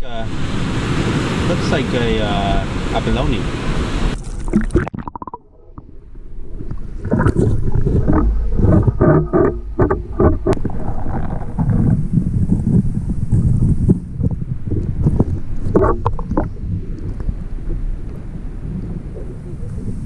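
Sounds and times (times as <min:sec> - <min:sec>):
surf and wind hiss: 0:00.0 - 0:04.5
muffled underwater sloshing: 0:00.0 - 0:20.0
sharp knocks and clicks underwater: 0:04.1 - 0:19.3.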